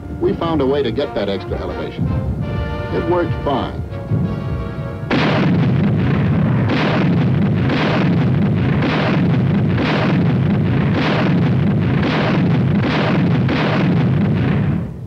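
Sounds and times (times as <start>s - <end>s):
music: 0.0s - 8.7s
artillery barrage rumbling: 0.0s - 15.0s
heavy gun reports: 0.1s - 14.8s.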